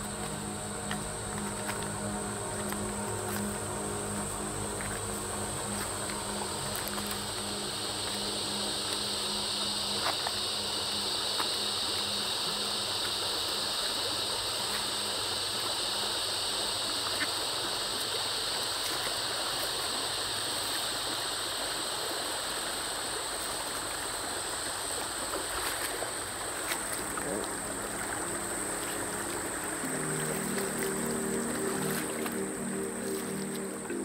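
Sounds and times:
creek water rushing over stones: 0:00.0 - 0:34.0
high-pitched whine: 0:00.0 - 0:34.0.

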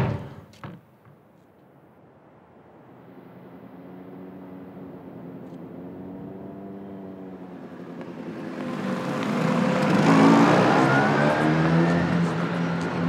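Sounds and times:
motor scooter engines passing: 0:02.9 - 0:13.0.

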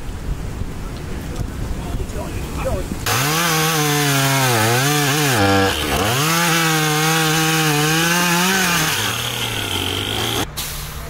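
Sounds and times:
chainsaw cutting wood: 0:03.0 - 0:10.5.

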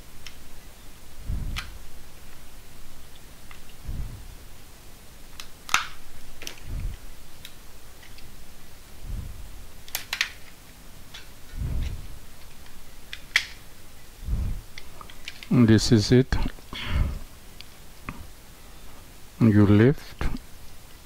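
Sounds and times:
plastic clicks and snaps: 0:05.3 - 0:06.6, 0:09.9 - 0:11.3, 0:12.6 - 0:13.6.

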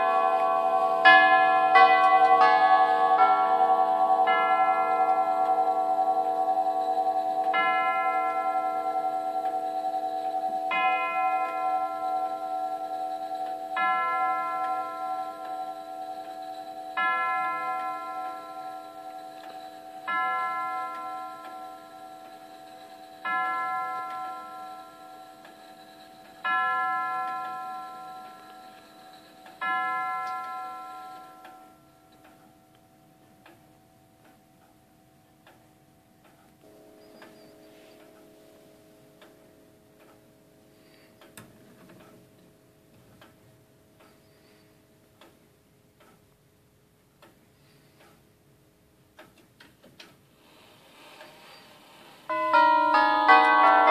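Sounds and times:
clock striking tubular bell: 0:00.0 - 0:33.1, 0:52.3 - 0:53.9
clock ticking faintly: 0:04.0 - 0:50.3.

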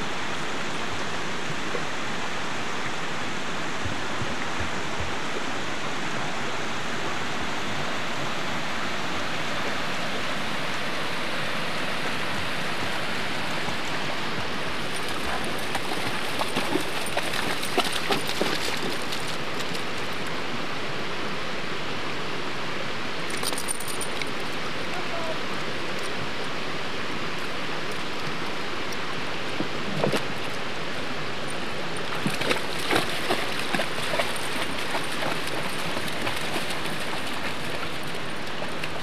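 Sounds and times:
rocky creek rushing: 0:00.0 - 0:39.0
dog splashing through water: 0:13.6 - 0:20.2, 0:32.1 - 0:39.0.

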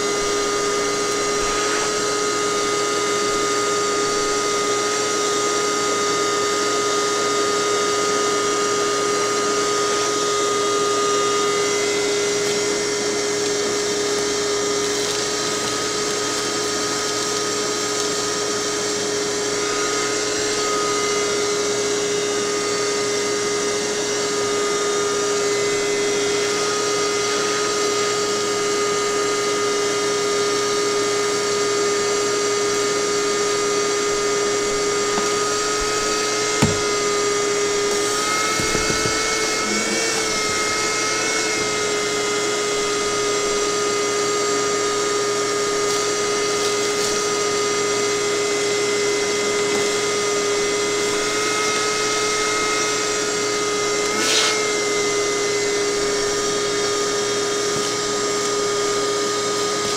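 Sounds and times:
shop vacuum running: 0:00.0 - 0:59.9
knock: 0:36.6 - 0:37.0, 0:38.5 - 0:39.2.

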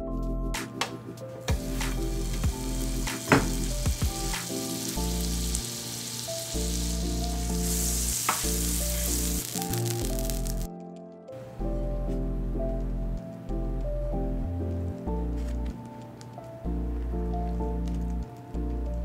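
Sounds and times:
butter sizzling on a griddle: 0:01.5 - 0:10.7.

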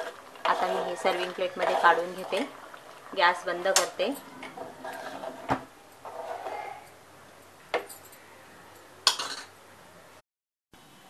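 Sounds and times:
spoon scraping metal pot: 0:00.0 - 0:02.5, 0:03.6 - 0:06.9.

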